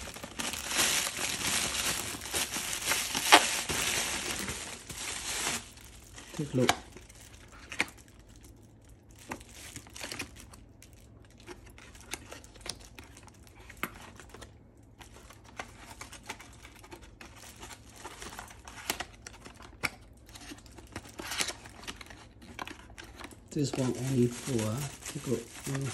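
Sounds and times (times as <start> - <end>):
cardboard boxes rustling: 0.0 - 6.7
plastic bag crinkling: 0.0 - 25.9.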